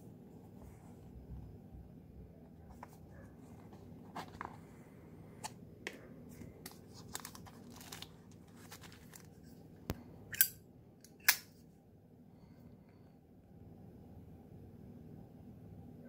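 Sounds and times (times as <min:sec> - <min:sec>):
plastic and cardboard rustling: 0:02.6 - 0:04.8, 0:06.2 - 0:09.6.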